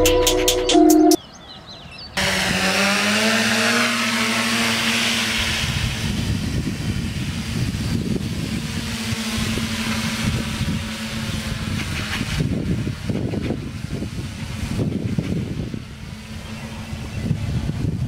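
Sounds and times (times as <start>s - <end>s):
drone propellers whirring: 2.2s - 18.0s
wind rumble on microphone: 5.2s - 18.0s.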